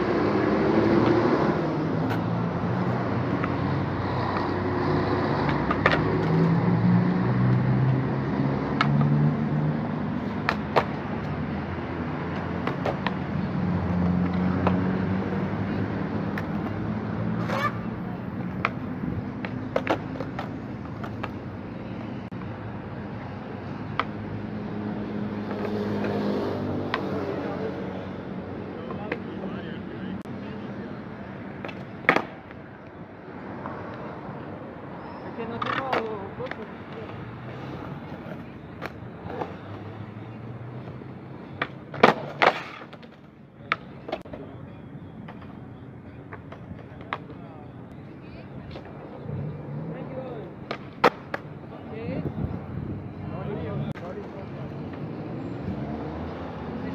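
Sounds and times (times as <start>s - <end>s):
skateboard wheels rolling on concrete: 0.0s - 56.9s
skateboard clacks: 2.0s - 6.4s, 8.7s - 11.4s, 12.0s - 15.4s, 16.2s - 16.8s, 17.4s - 22.4s, 31.5s - 33.0s, 35.5s - 40.0s, 40.8s - 44.5s, 46.2s - 47.5s, 50.4s - 51.6s.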